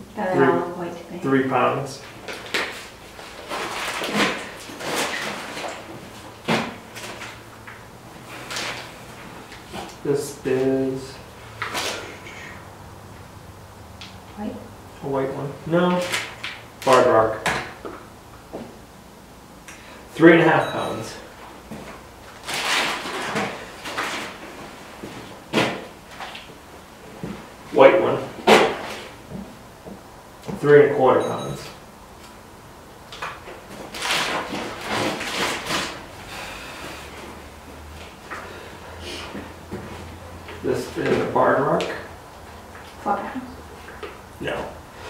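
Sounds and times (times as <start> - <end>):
plastic bag crinkling: 2.3 - 5.8.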